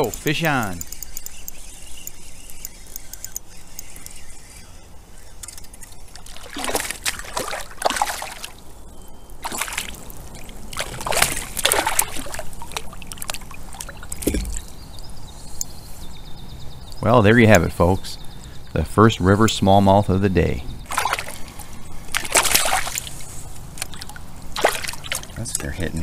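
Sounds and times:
fish splashing in water: 6.2s - 8.6s, 9.4s - 14.7s, 20.9s - 25.4s.

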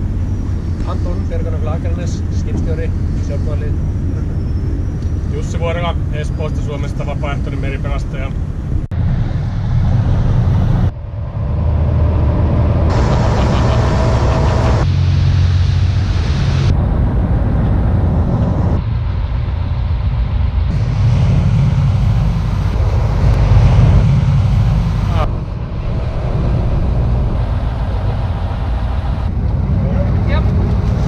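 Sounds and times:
wind on microphone: 0.0s - 31.0s
boat engines running at speed: 11.3s - 16.7s, 20.7s - 31.0s.

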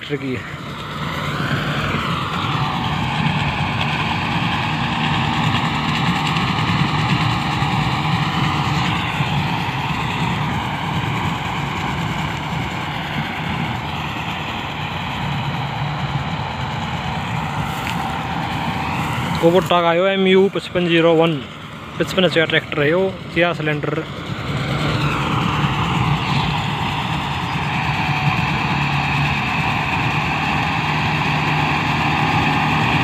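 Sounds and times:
straw cutter whirring: 0.0s - 33.0s
tractor engine drone: 0.0s - 33.0s.

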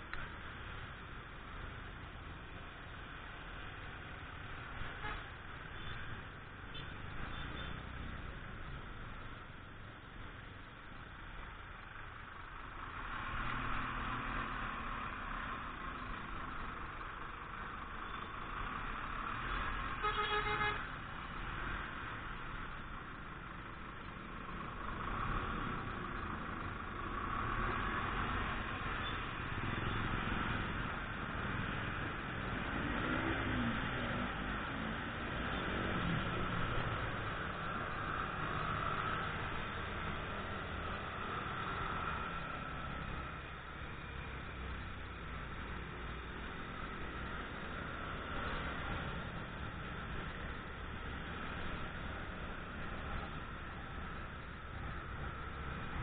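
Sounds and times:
horn honking: 20.0s - 20.9s.

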